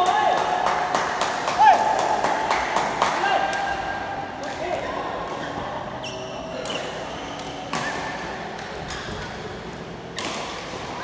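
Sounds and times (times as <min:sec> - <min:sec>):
sneakers squeaking on court: 0:05.9 - 0:07.7
racket hitting shuttlecock: 0:10.1 - 0:10.8.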